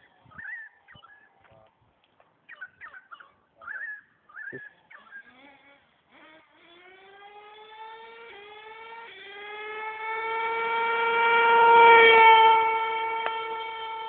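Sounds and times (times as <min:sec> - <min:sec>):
model truck engine at full throttle: 0:04.5 - 0:14.0.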